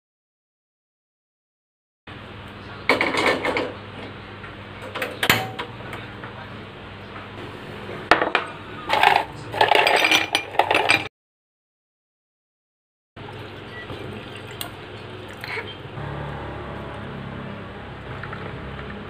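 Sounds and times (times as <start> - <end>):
ice cubes rattling in glass: 8.9 - 11.1.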